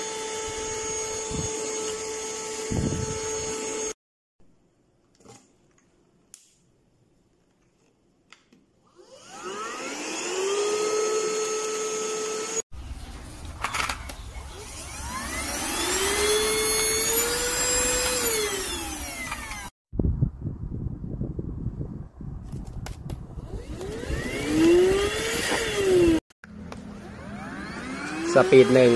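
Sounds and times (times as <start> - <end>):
vacuum cleaner motor whining: 0.0 - 4.0, 8.9 - 12.6, 14.5 - 19.7, 23.4 - 26.2, 26.8 - 28.9.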